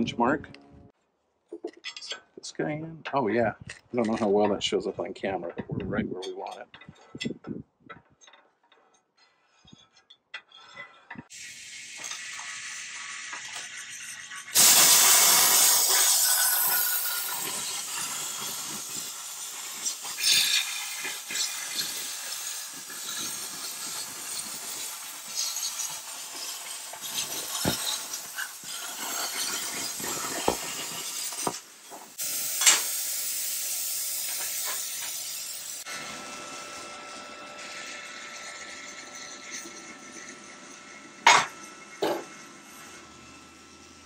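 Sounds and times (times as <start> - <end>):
plasma cutter hissing: 11.3 - 35.9.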